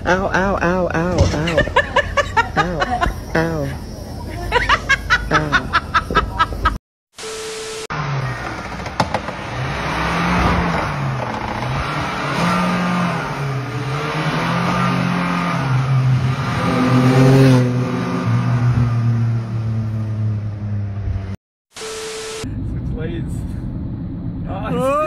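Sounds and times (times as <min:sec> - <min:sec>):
short steady tone: 0:07.2 - 0:08.4, 0:21.8 - 0:22.6
car engine revving: 0:07.9 - 0:21.4.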